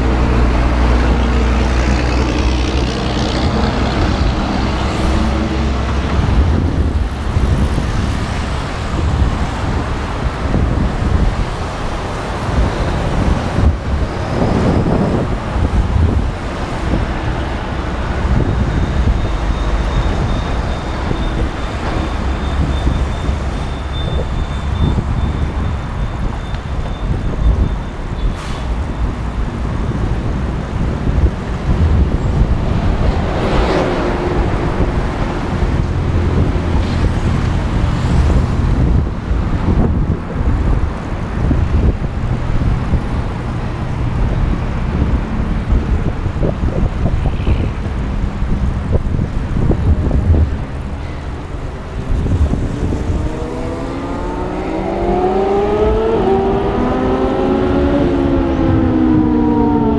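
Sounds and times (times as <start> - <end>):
vehicle passing close: 0.0 - 23.9, 46.2 - 59.9
low rumble of cars: 0.0 - 59.9
engine accelerating: 52.2 - 59.9.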